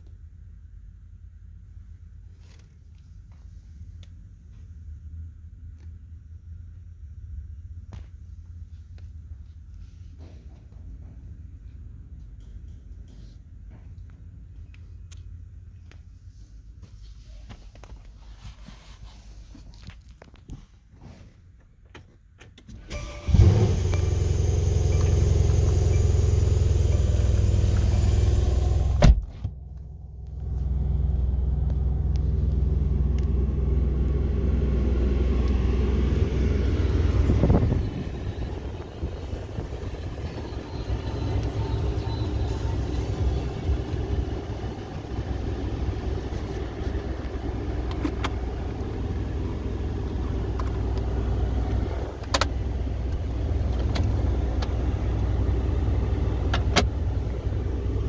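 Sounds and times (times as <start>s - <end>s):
car engine starting: 22.0s - 58.0s
deep engine idle: 23.2s - 58.0s.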